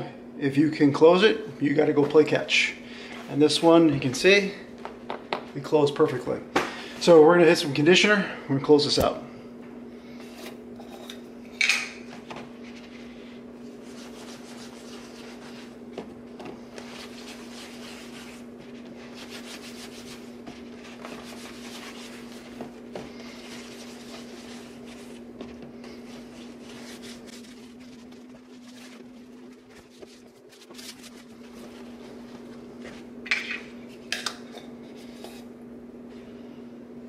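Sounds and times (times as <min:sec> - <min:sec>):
steady low hum: 0:00.0 - 0:37.0
hands rubbing leather: 0:13.7 - 0:15.8, 0:16.7 - 0:33.0.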